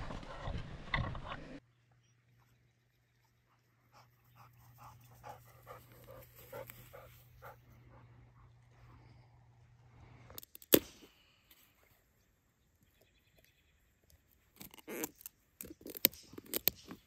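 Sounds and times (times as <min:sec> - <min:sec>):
dog panting: 0:03.5 - 0:08.8.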